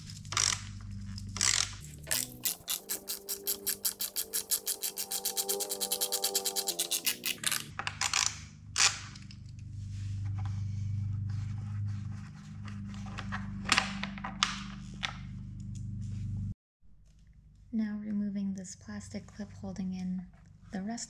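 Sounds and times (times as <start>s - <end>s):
steady low hum: 0.0s - 21.0s
hex key clicking and scraping metal: 1.3s - 9.4s.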